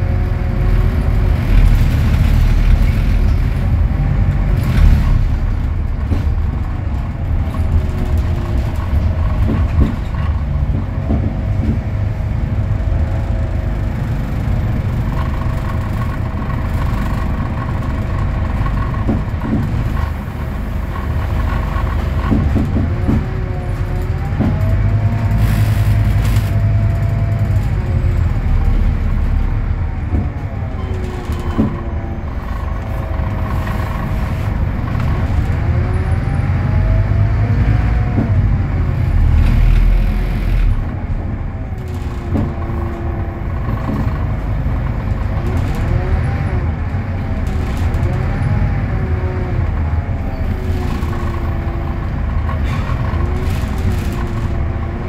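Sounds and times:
bus diesel engine with whine: 0:00.0 - 0:55.0
sharp knocks: 0:30.1 - 0:35.8.

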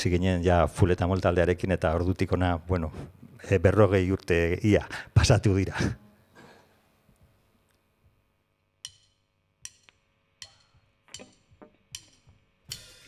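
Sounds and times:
drumsticks clicking together: 0:08.8 - 0:12.9.

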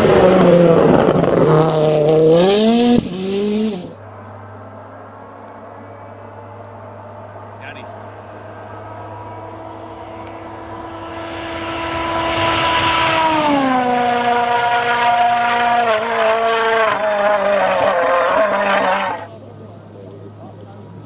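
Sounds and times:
rally car engine passing: 0:00.0 - 0:21.0.

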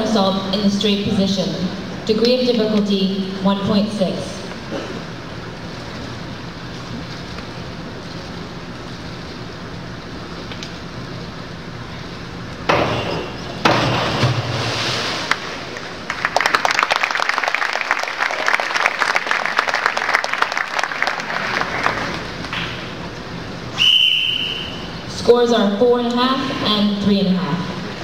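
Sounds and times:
pool hall hum: 0:00.0 - 0:28.0
diving board banging: 0:12.7 - 0:15.8
diver splashing into water: 0:13.6 - 0:15.9
people clapping: 0:15.3 - 0:22.9.

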